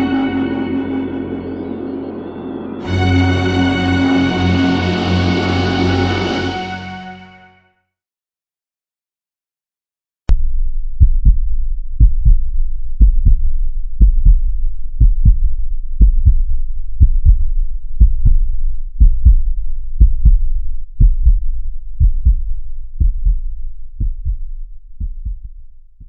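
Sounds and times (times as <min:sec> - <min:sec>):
heartbeat double thumps: 0:10.3 - 0:25.8.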